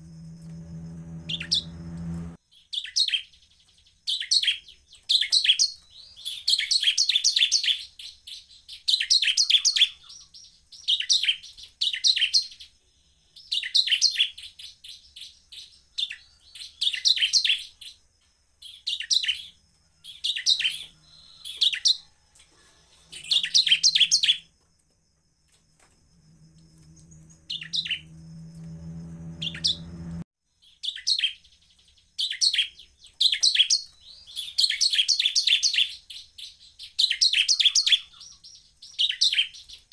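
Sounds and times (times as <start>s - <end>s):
low hum: 0.0s - 2.4s, 26.0s - 30.3s
bird singing high chattering phrases: 1.3s - 1.8s, 4.1s - 12.7s, 22.9s - 24.5s, 27.5s - 28.1s, 32.2s - 39.9s.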